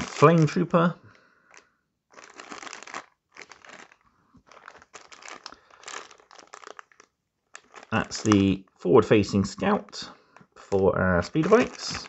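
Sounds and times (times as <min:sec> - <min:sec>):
plastic bag crinkling: 0:00.0 - 0:08.6, 0:11.2 - 0:12.0.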